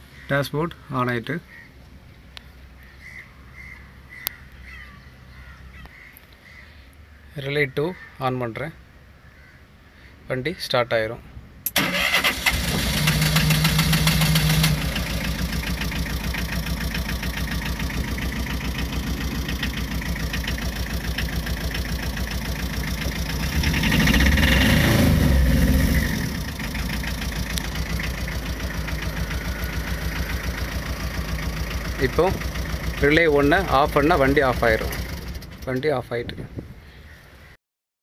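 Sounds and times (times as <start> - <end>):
engine starter cranking: 11.6 - 36.0
engine idling: 11.7 - 36.1.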